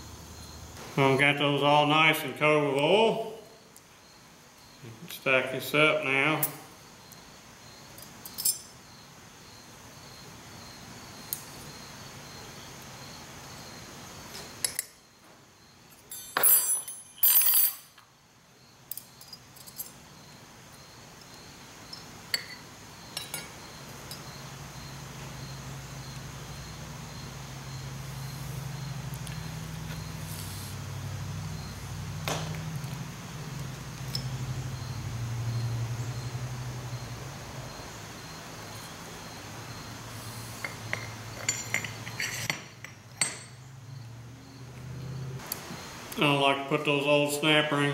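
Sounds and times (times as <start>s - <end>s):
metal parts clinking: 8.0s - 8.7s, 16.0s - 18.0s, 18.9s - 20.0s, 40.6s - 43.6s.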